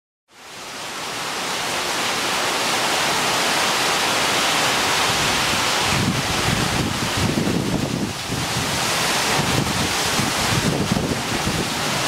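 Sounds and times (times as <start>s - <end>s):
heavy rain hissing: 0.3s - 12.0s.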